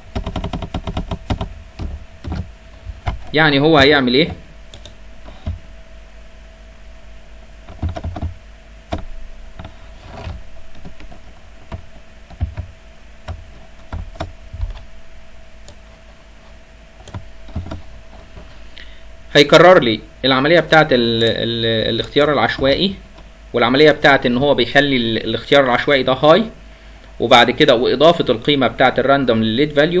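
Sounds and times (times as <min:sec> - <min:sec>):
faint steady hum: 0:00.0 - 0:30.0
computer keyboard keys tapping: 0:00.1 - 0:03.4, 0:07.7 - 0:09.7, 0:10.8 - 0:14.9, 0:17.0 - 0:17.9.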